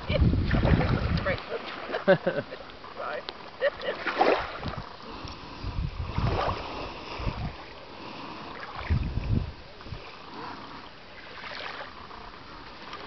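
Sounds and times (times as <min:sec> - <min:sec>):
wind buffeting microphone: 0:00.0 - 0:01.6, 0:04.2 - 0:07.8, 0:08.7 - 0:10.2
small waves lapping: 0:00.0 - 0:13.0.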